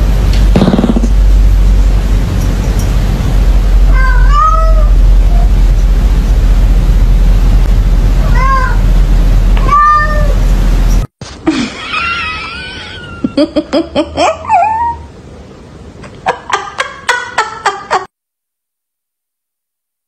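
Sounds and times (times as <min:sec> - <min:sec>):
steady low hum: 0:00.0 - 0:18.0
cat meowing: 0:03.9 - 0:05.0, 0:09.6 - 0:10.4
dog yipping: 0:14.3 - 0:15.1
dog whining: 0:14.3 - 0:15.2.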